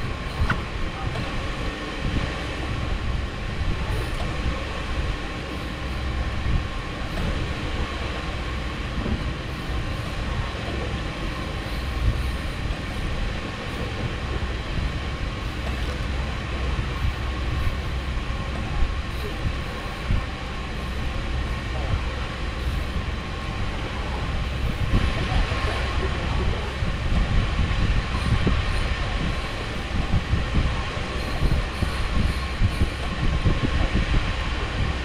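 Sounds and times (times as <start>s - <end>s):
faint hum: 0.0s - 35.0s
low mechanical rumble: 0.0s - 35.0s
wind buffeting microphone: 0.0s - 35.0s.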